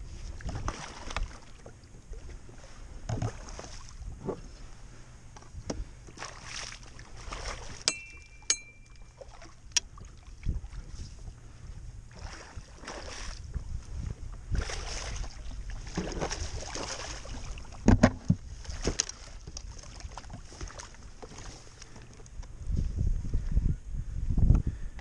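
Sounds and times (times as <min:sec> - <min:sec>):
wind buffeting the microphone: 0:00.0 - 0:01.3, 0:09.8 - 0:25.0
water splashing: 0:00.4 - 0:01.9, 0:06.2 - 0:11.0, 0:12.1 - 0:13.4, 0:14.5 - 0:17.9.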